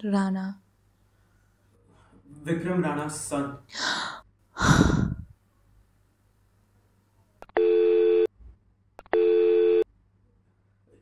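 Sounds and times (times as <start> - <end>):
phone busy tone beeps: 7.6 - 8.3, 9.1 - 9.8.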